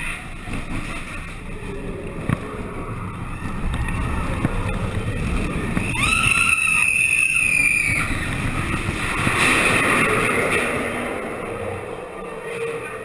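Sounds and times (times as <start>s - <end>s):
roller coaster rumbling on track: 0.0s - 13.0s
high-pitched squeal: 2.6s - 13.0s.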